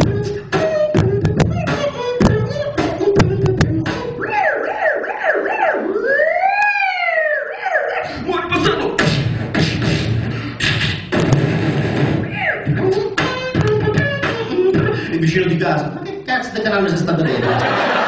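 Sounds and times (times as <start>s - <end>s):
beatbox mouth percussion: 0.0s - 4.6s, 6.6s - 16.2s
man mouth siren wail: 3.8s - 8.3s.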